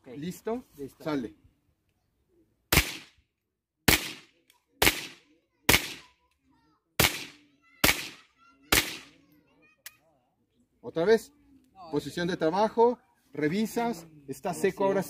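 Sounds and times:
rifle shots: 2.7s - 3.1s, 3.9s - 6.1s, 7.0s - 9.1s.

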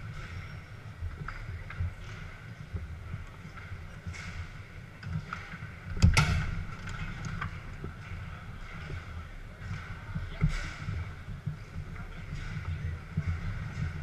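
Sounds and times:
clatter and murmur of hall: 0.0s - 14.0s.

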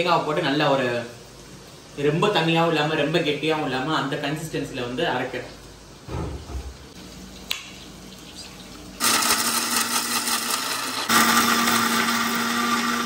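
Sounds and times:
mixer grinder motor humming: 9.0s - 13.0s.

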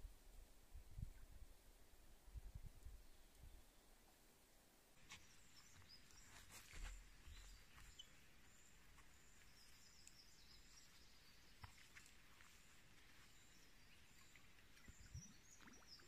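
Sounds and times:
soft rustles: 5.0s - 11.0s
faint bird chirps: 5.0s - 16.0s.

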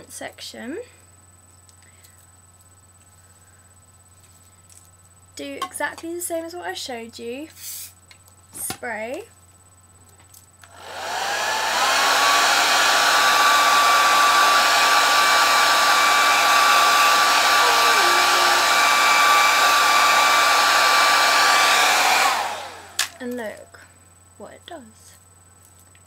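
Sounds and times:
hair dryer running: 10.6s - 23.2s.

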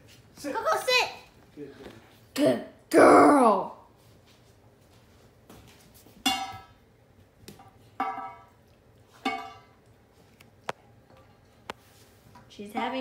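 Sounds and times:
metal dog bowl clanging: 8.0s - 9.8s.

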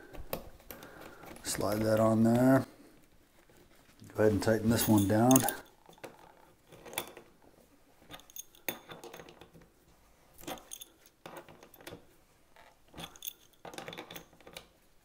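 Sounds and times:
metallic clicks and jingles: 4.2s - 7.3s, 8.0s - 9.6s, 10.4s - 12.0s, 12.9s - 14.8s.

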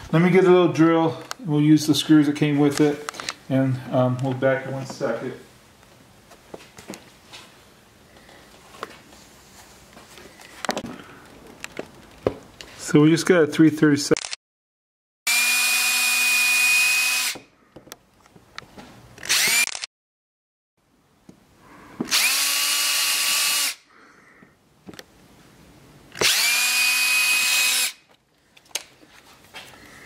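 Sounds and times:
cordless drill running: 15.3s - 17.4s, 19.2s - 19.9s, 22.1s - 23.9s, 26.2s - 28.0s.

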